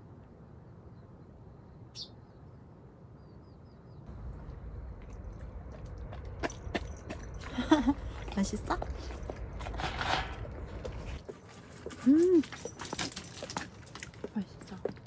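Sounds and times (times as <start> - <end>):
bird chirp: 0.9 - 4.4
low rumble: 4.1 - 11.2
crunching clicks of chewing: 4.1 - 14.3.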